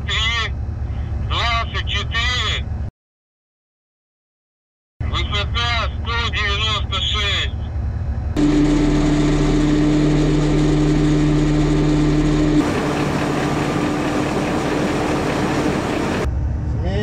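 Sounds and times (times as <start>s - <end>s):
low rumble: 7.6s - 17.0s
machine hum: 7.7s - 16.3s.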